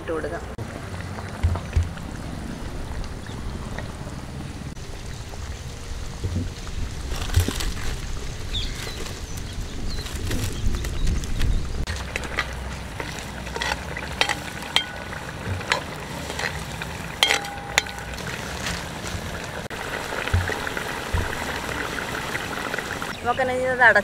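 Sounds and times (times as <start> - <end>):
sauce simmering and sizzling: 12.0 - 23.2
utensil clinking against pan: 13.5 - 16.6, 17.2 - 18.4.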